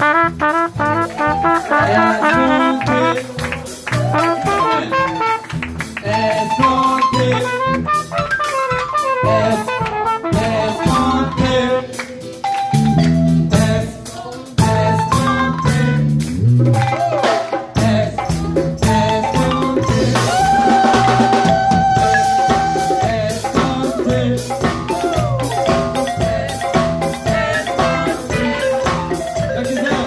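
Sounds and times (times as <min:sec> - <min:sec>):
trumpet melody: 0:00.0 - 0:12.0, 0:15.1 - 0:16.3
live band playing: 0:00.0 - 0:30.0.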